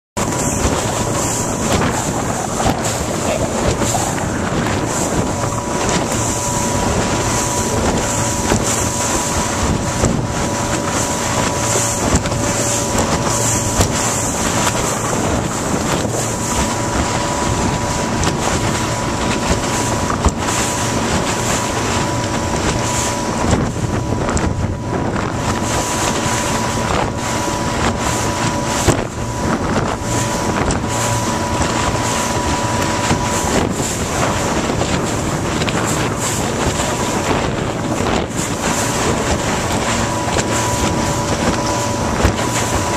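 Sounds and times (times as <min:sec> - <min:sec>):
motorboat engine running: 0:00.2 - 0:42.9
water rushing past hull: 0:00.2 - 0:42.9
wind buffeting microphone: 0:00.2 - 0:42.9.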